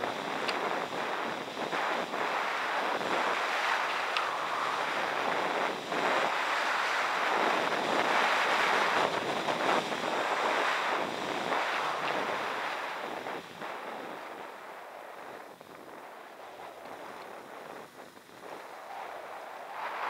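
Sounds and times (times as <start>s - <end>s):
skis sliding on packed snow: 0.0s - 20.0s
wind rushing over microphone: 0.0s - 20.0s.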